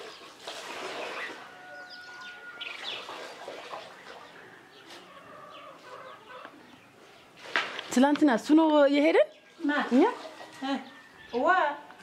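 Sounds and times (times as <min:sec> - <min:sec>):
birds chirping: 0:01.1 - 0:12.0.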